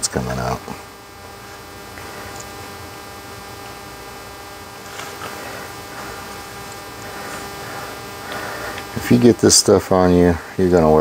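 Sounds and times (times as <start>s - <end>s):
electrical mains hum: 0.0s - 11.0s
faint handling sounds: 4.7s - 9.0s.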